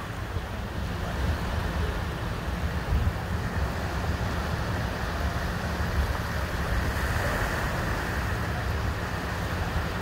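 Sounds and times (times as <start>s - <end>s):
small waves washing: 0.0s - 10.0s
wind rumbling on microphone: 0.0s - 10.0s.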